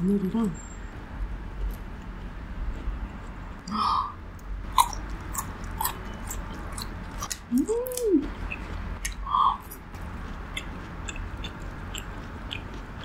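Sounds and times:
crunchy chewing of fried food: 1.6 - 3.5, 4.6 - 13.0.

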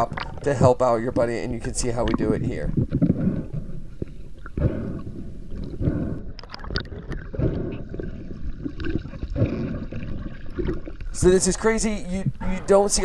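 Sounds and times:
water sloshing and gurgling: 0.0 - 13.0.

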